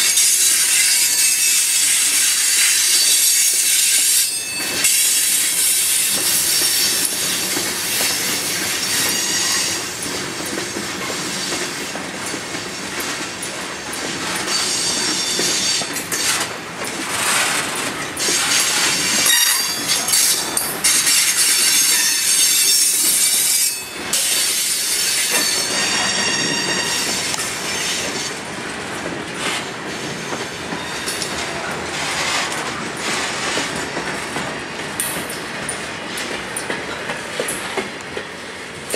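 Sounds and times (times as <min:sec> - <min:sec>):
train wheels rumbling on rail: 0:00.0 - 0:38.9
ringing wheel squeals: 0:08.8 - 0:09.9, 0:14.4 - 0:15.9, 0:21.0 - 0:28.1.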